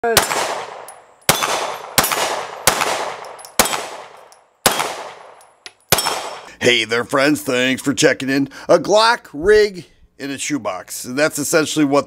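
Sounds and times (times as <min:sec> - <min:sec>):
pistol shots with echo: 0:00.0 - 0:06.5.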